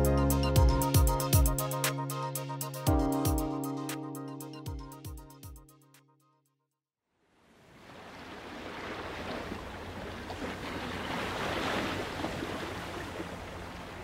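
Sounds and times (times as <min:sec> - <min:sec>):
ocean waves washing onto beach: 0:07.5 - 0:14.0.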